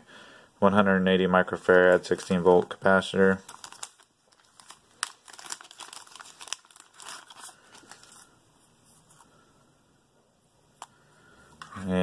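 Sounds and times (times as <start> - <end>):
plastic bag crinkling: 1.7 - 8.3.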